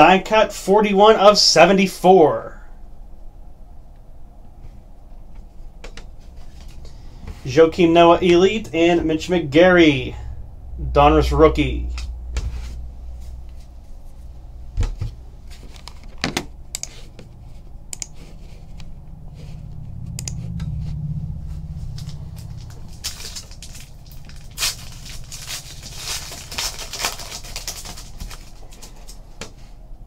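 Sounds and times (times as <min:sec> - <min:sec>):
low rumble: 0:02.5 - 0:29.2
foil wrapper crinkling: 0:22.4 - 0:29.3.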